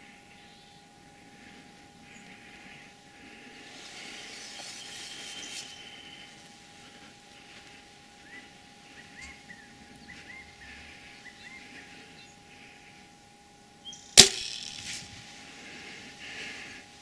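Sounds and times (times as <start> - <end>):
faint short chirping calls: 3.6 - 6.5, 8.2 - 12.4
bowstring snap: 14.2 - 15.0.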